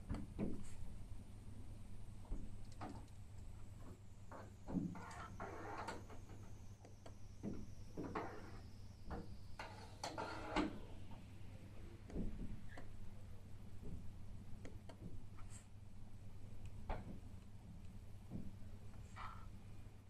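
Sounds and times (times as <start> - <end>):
steady low hum: 0.0 - 20.0
scraping rubs: 3.8 - 6.5.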